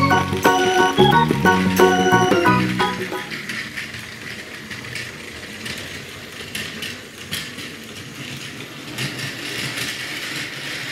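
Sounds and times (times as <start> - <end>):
toy train motor whirring: 3.1 - 10.9.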